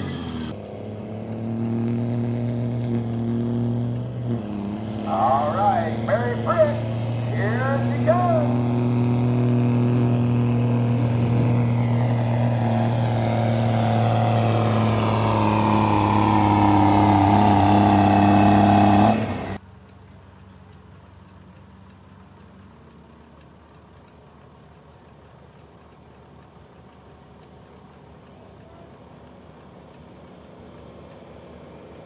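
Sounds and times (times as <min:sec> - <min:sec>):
diesel engine revving under load: 0:00.0 - 0:19.6.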